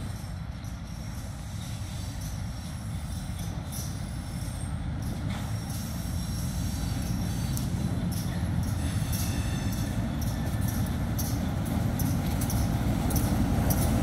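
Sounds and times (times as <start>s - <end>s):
diesel locomotive engine rumble: 0.0s - 14.0s.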